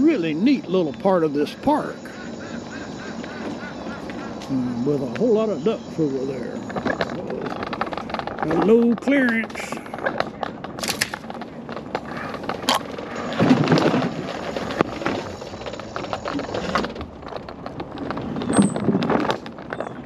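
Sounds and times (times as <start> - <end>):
wheels rattling on wooden planks: 0.0 - 20.0
scooter clicks and bumps on concrete: 2.3 - 20.0.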